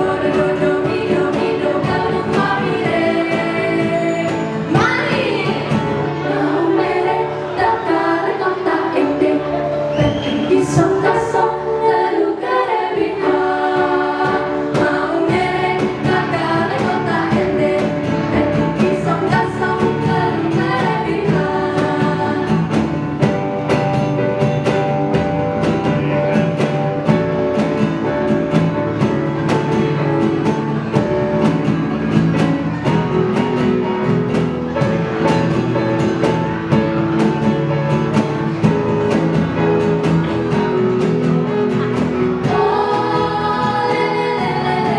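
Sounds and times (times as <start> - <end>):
group of voices singing: 0.0 - 24.2, 39.1 - 44.9
instrumental accompaniment with beat: 0.0 - 44.9.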